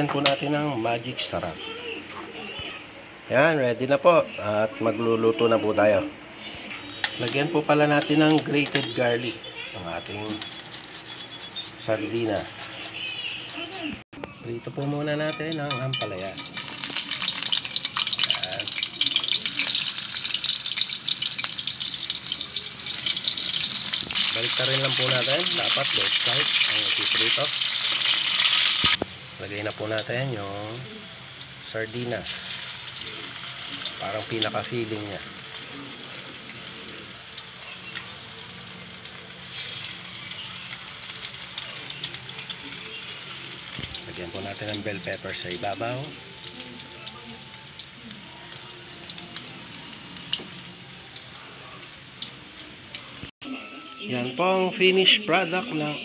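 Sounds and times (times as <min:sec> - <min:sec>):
vegetables frying in hot oil: 0:15.5 - 0:53.3.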